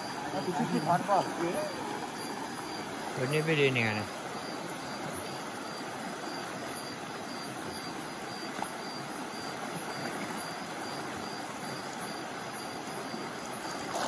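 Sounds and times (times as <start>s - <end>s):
water splashing in stream: 0.0s - 14.0s.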